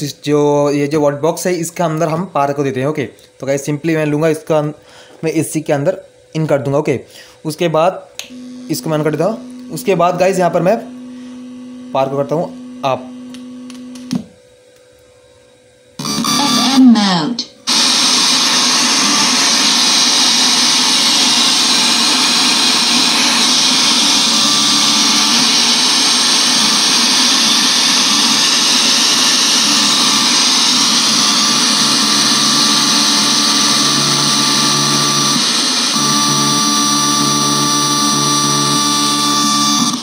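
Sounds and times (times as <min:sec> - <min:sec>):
speaker hiss and buzz: 0:00.0 - 0:14.4, 0:15.9 - 0:40.0
steady tones: 0:16.0 - 0:40.0.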